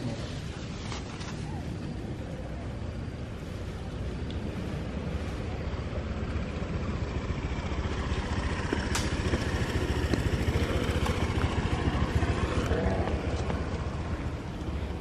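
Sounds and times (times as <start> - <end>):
motor scooter passing: 4.6 - 15.0.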